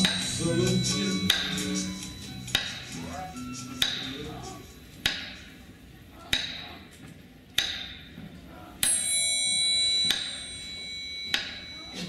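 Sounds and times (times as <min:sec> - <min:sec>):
bell ringing: 0:00.0 - 0:02.6, 0:08.8 - 0:12.0
sharp ringing ticks: 0:08.8 - 0:12.0.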